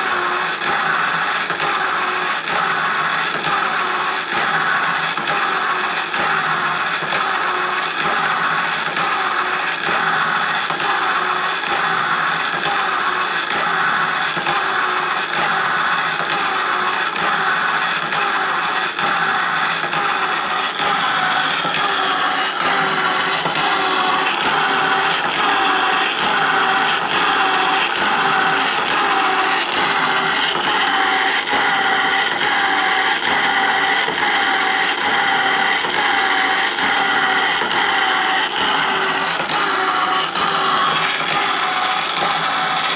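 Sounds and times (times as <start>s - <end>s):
motor whining: 0.0s - 42.9s.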